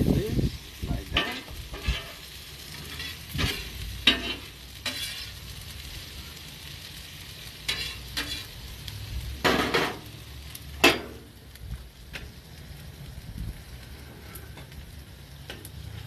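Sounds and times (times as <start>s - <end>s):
vegetables sizzling on griddle: 0.0s - 16.0s
metal spatula scraping griddle: 1.0s - 5.7s, 7.6s - 8.7s, 9.4s - 10.1s, 10.7s - 11.3s.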